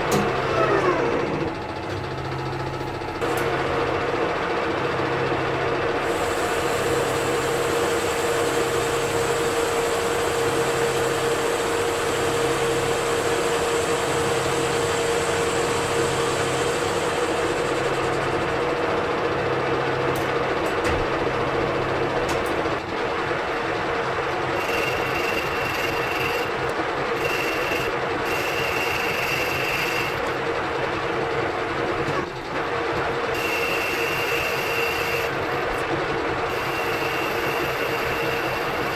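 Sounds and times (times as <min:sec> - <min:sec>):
metal lathe droning: 0:04.8 - 0:19.0, 0:24.2 - 0:31.2, 0:33.3 - 0:38.9.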